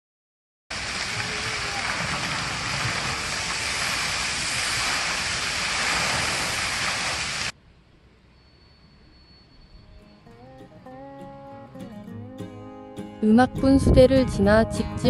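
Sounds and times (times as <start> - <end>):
fountain water splashing: 0.7 - 7.5.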